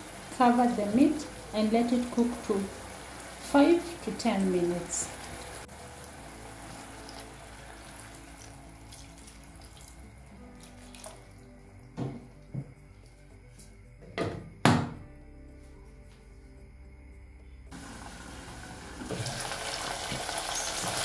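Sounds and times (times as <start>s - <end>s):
water pouring into a pot: 0.0s - 11.4s, 17.8s - 21.0s.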